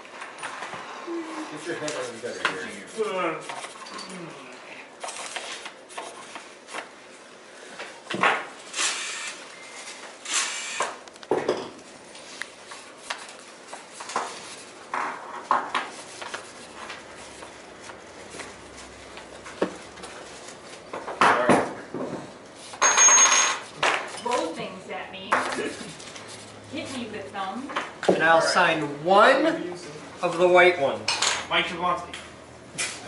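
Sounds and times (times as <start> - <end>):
rattling clinks: 22.8 - 23.6.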